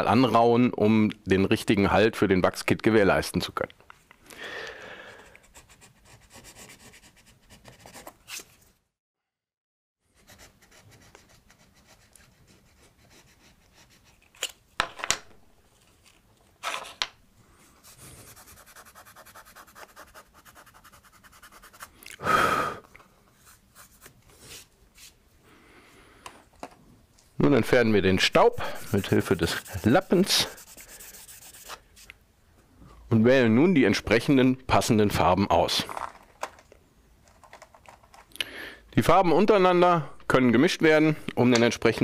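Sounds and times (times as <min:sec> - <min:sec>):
scraper scraping wooden plank: 0:28.6 - 0:31.8.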